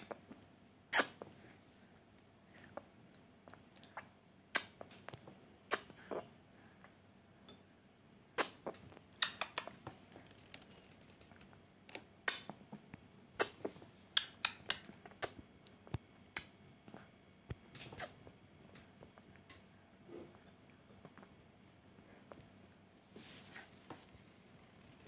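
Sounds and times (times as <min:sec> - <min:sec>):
baby eating wet clicks and smacks: 0:02.6 - 0:06.2, 0:08.4 - 0:19.7, 0:20.3 - 0:22.8.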